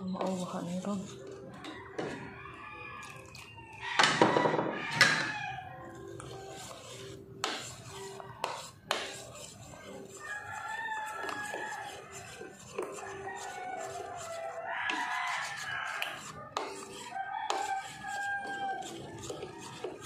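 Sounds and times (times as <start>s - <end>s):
spoon stirring batter in bowl: 0.0s - 20.0s
rooster crowing: 1.6s - 5.8s, 10.1s - 20.0s.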